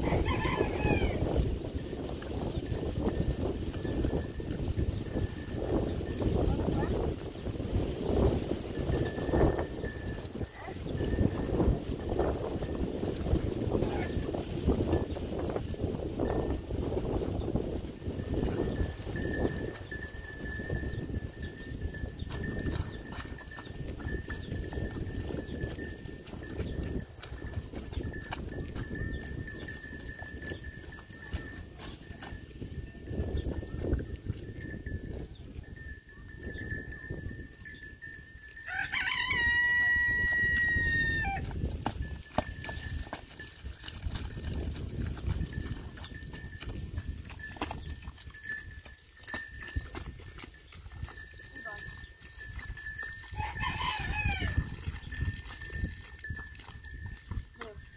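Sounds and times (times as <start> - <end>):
rooster crowing: 0.0 - 1.2, 38.6 - 41.4, 53.4 - 54.7.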